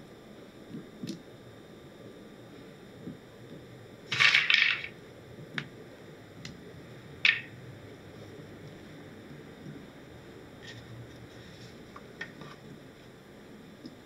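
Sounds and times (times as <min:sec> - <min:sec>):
nuts clattering rattle: 0:04.1 - 0:05.0, 0:07.3 - 0:07.5.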